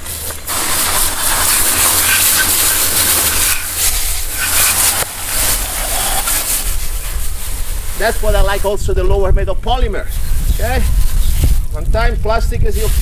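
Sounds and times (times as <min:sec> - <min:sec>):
hose spray hissing: 0:00.0 - 0:13.0.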